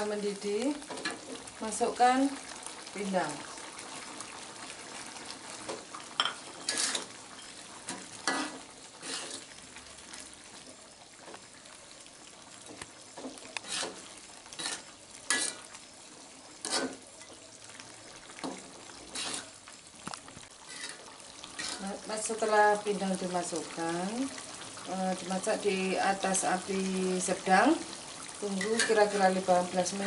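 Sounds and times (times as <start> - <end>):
sauce bubbling: 0.0 - 30.0
spatula scraping metal wok: 6.5 - 7.2, 7.9 - 9.5, 13.6 - 15.7, 16.6 - 17.0, 19.0 - 19.6, 20.6 - 22.0.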